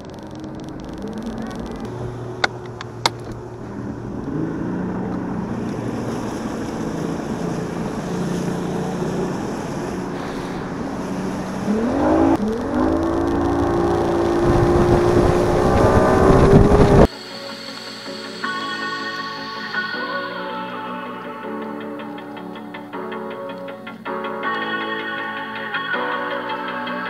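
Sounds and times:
outboard motor running: 0.0s - 17.1s
wind: 0.0s - 17.1s
water noise: 0.0s - 22.1s.

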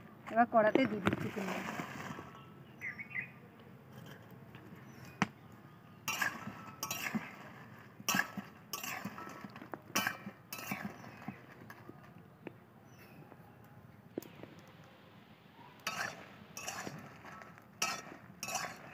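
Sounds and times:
metal spatula scraping a wok: 6.1s - 9.4s, 10.0s - 11.2s, 15.8s - 18.9s.

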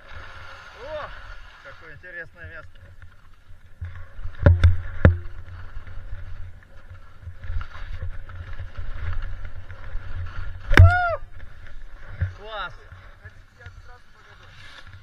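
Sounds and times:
wind rumbling on microphone: 3.5s - 15.0s
skis scraping over snow: 5.3s - 10.7s, 11.4s - 15.0s.

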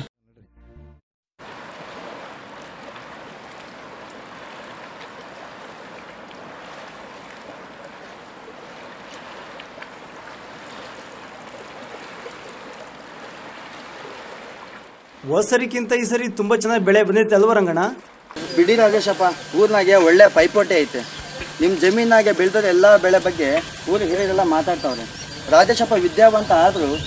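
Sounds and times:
steady rushing outdoor noise: 18.3s - 27.0s.

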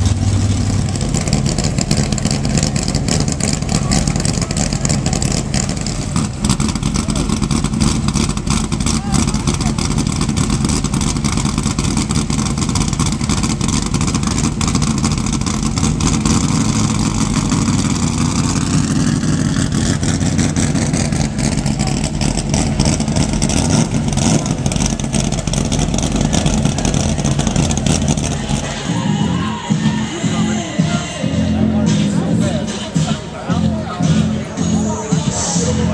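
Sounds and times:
race car engine revving: 0.0s - 35.9s.

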